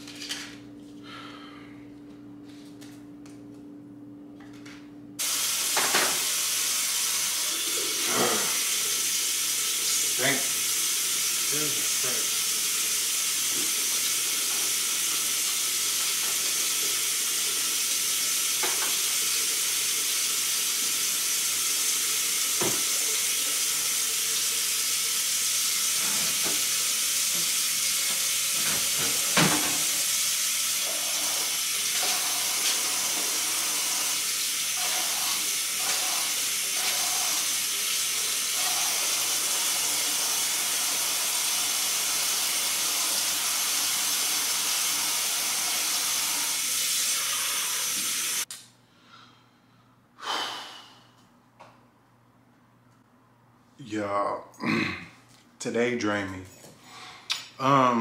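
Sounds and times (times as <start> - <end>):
items handled on kitchen counter: 0.0 - 1.0.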